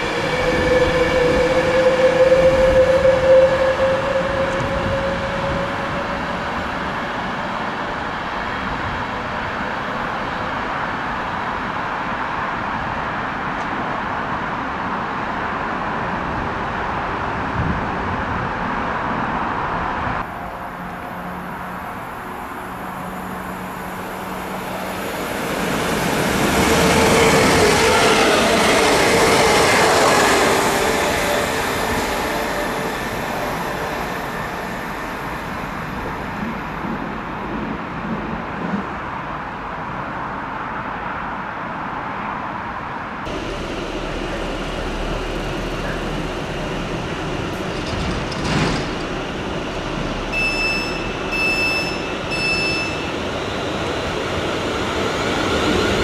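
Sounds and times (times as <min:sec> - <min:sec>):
electric train passing: 0:00.0 - 0:40.8, 0:43.3 - 0:56.0
wheel and track noise: 0:43.3 - 0:56.0.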